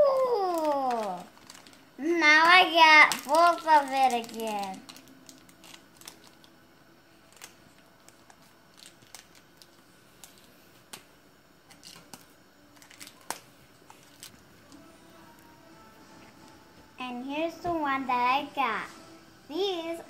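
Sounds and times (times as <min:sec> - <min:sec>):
plastic wrapper crinkling: 0:00.0 - 0:14.9.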